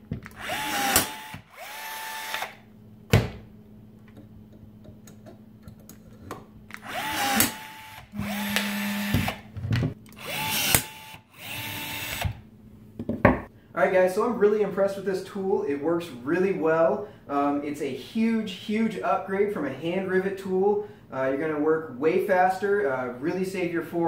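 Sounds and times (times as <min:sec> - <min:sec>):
rivet tool motor whining: 0:00.3 - 0:02.6, 0:06.8 - 0:09.4, 0:10.1 - 0:12.4.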